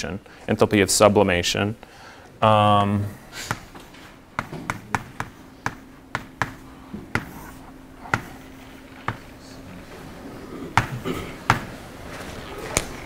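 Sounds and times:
chalk tapping on chalkboard: 0:04.4 - 0:09.3.

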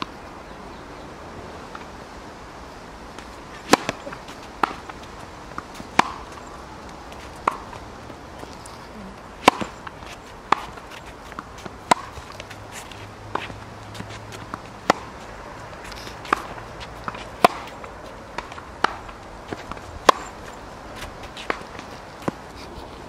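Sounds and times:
tennis ball pops: 0:03.2 - 0:06.4, 0:07.4 - 0:07.8, 0:09.4 - 0:10.8, 0:11.4 - 0:12.4, 0:13.3 - 0:15.2, 0:15.8 - 0:20.4.

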